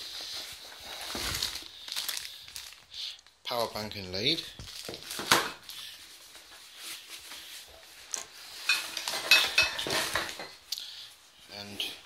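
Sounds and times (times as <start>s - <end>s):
metal items clinking and clattering: 8.2s - 10.6s.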